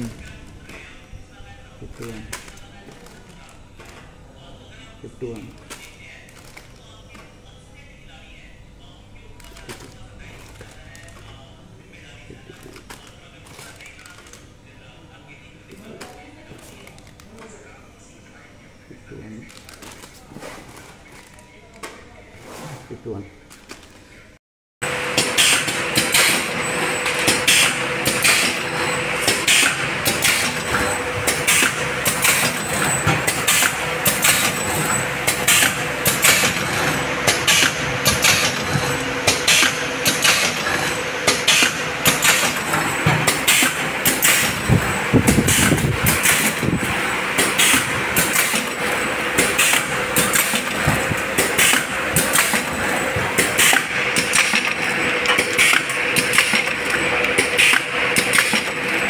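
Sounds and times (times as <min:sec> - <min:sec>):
machine hum: 0:24.8 - 0:59.0
rhythmic clicking and clacking: 0:24.8 - 0:59.0.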